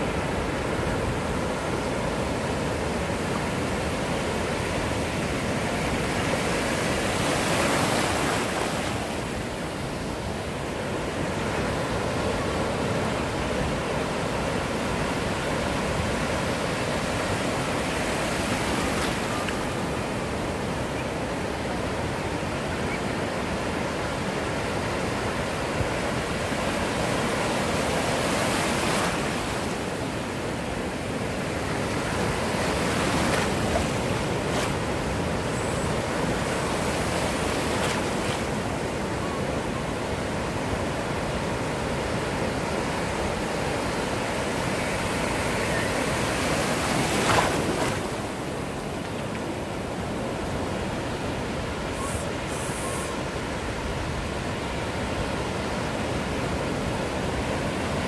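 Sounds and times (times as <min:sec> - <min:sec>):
ocean surf breaking: 0:24.6 - 0:55.2.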